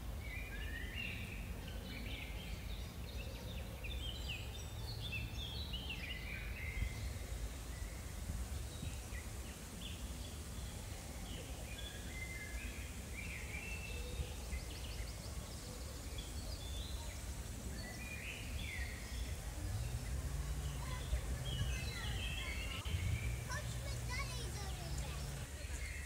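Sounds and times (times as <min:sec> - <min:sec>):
small birds chirping: 0:00.0 - 0:26.0.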